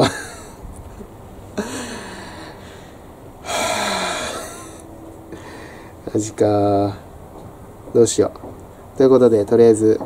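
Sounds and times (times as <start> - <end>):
long exhaled sigh: 1.6 - 6.0
man's short vocal sound: 3.5 - 4.8.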